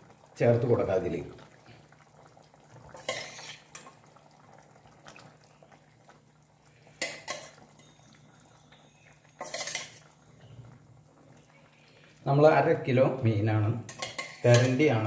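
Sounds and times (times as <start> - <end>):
ladle scraping in a pot: 2.9 - 3.9, 6.9 - 8.1, 9.3 - 10.5, 13.9 - 14.9.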